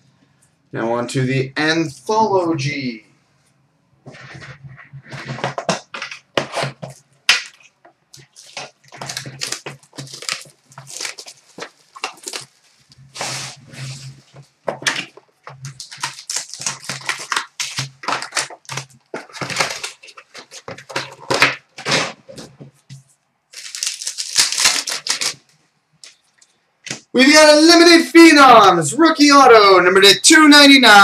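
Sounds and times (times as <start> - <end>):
cardboard rustling and scraping: 4.0 - 25.5
plastic wrapper crinkling: 4.1 - 27.0.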